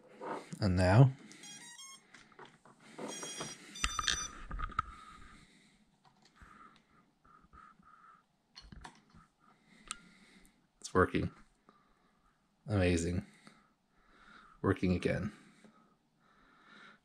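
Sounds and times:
drone motor startup beeps: 1.4s - 2.0s, 3.0s - 4.4s
short even beeps: 1.4s - 2.0s, 3.1s - 4.4s.

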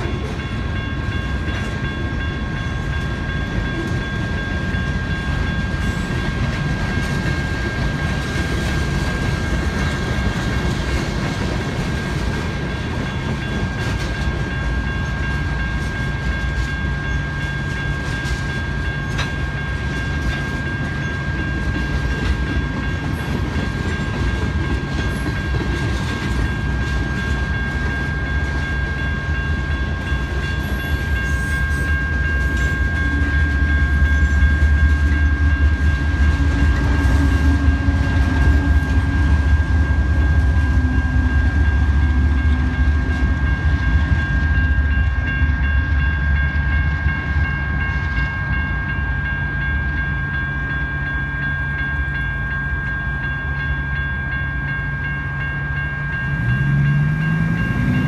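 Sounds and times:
crossing bells ringing: 0.0s - 58.0s
diesel locomotive engine drone: 0.0s - 58.0s
freight cars rumbling past: 56.1s - 58.0s.

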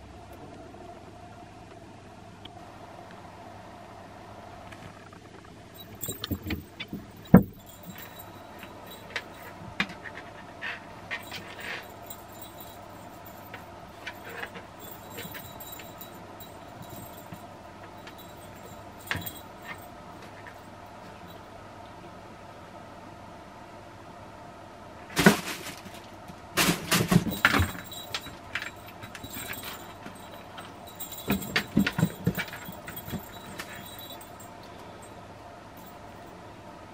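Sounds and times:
toy rattling: 5.8s - 10.3s, 11.1s - 20.6s, 26.6s - 34.6s.

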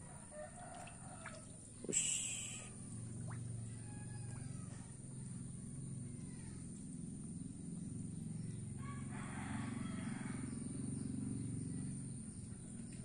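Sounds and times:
steady low hum: 0.0s - 13.0s
fish splashing at water surface: 0.5s - 4.6s.

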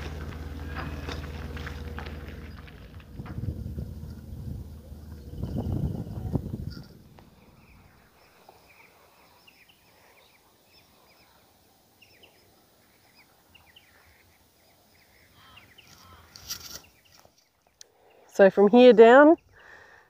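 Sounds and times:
wind noise on microphone: 0.0s - 8.0s
birds chirping: 0.0s - 20.0s.

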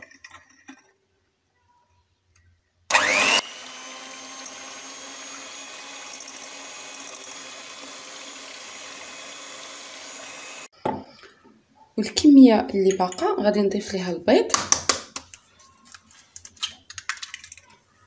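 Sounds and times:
electric hand mixer whisking batter: 2.9s - 10.7s.

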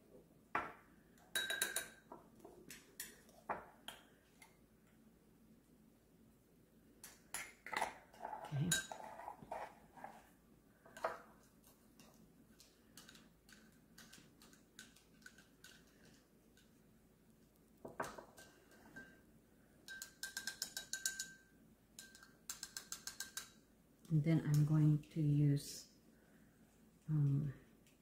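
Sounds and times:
spoon clinking against ceramic bowl: 1.3s - 2.0s, 19.8s - 23.5s.

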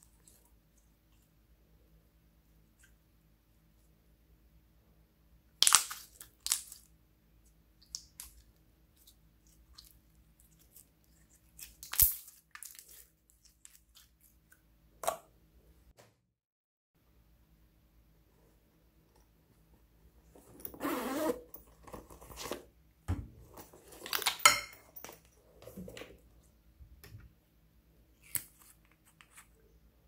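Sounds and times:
slime popping and crackling: 5.6s - 6.8s.

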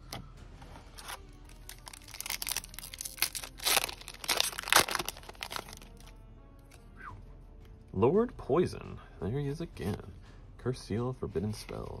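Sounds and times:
foil wrapper tearing and crinkling: 1.0s - 6.1s.

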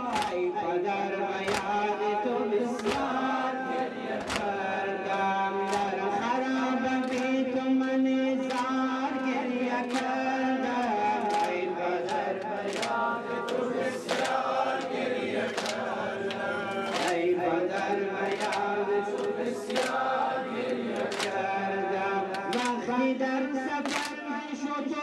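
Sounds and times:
sharp group beat: 0.0s - 0.5s, 2.7s - 7.4s, 9.8s - 21.6s
group chanting lament: 0.0s - 25.0s.

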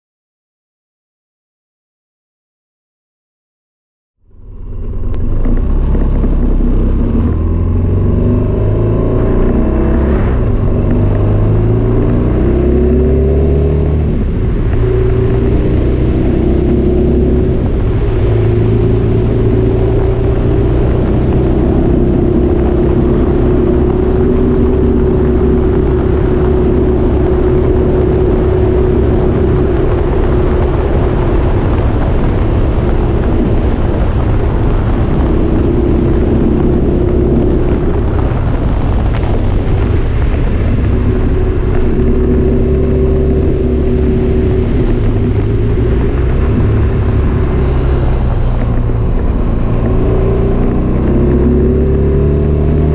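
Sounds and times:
motorcycle engine accelerating: 4.2s - 52.9s
wind rushing: 4.3s - 52.9s.

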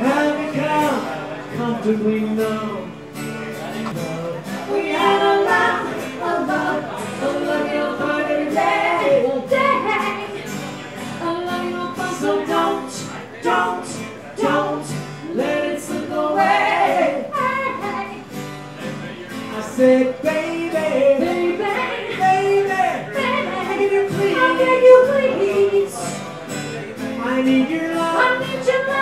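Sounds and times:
strummed acoustic guitars: 0.0s - 29.0s
woman singing: 4.1s - 10.5s, 11.1s - 18.3s, 19.8s - 26.2s, 27.2s - 29.0s.

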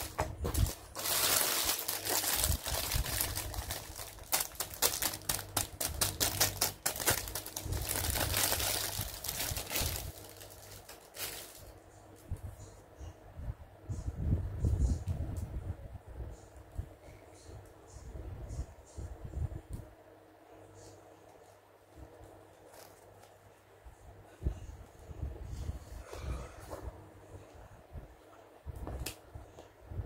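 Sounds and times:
plastic packaging crinkling: 0.0s - 11.7s, 22.6s - 23.3s.

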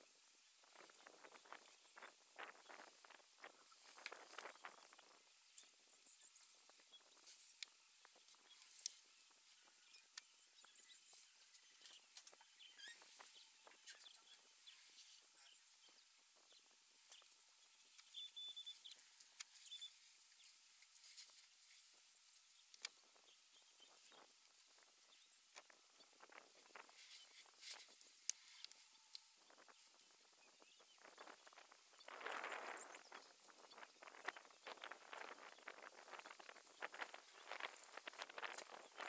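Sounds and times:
steady high hiss: 0.0s - 39.0s
soft rustles and clicks: 0.6s - 39.0s.

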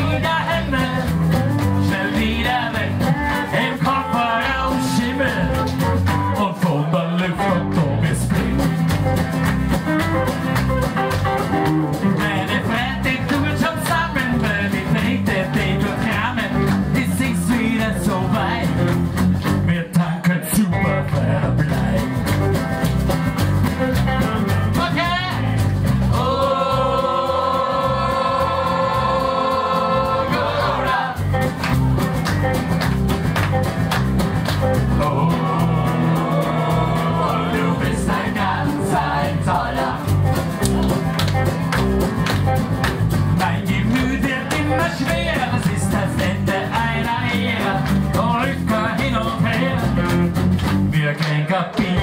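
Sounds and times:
lead singer singing: 0.0s - 1.2s, 1.8s - 5.7s, 34.9s - 40.1s, 43.4s - 50.2s
strummed acoustic guitars: 0.0s - 52.0s.

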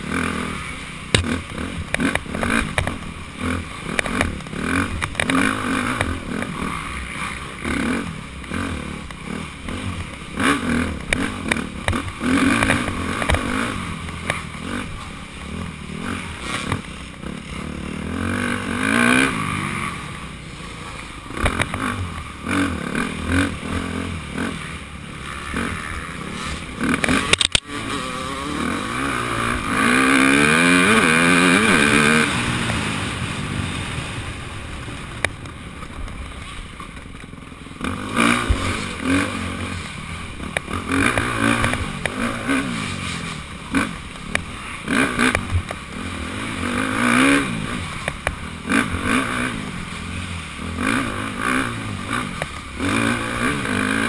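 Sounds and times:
dirt bike engine revving: 0.0s - 54.0s
rattle and clatter of bumps: 1.1s - 20.3s, 21.3s - 33.2s.

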